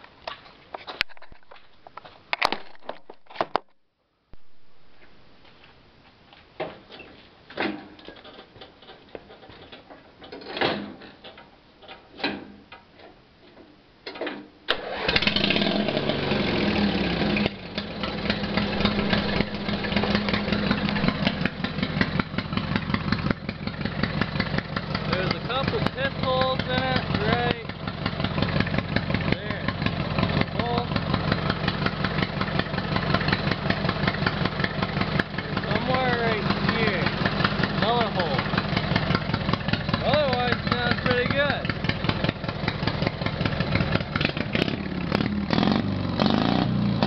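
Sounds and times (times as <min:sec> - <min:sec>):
lawn mower engine running: 0:14.7 - 0:46.2.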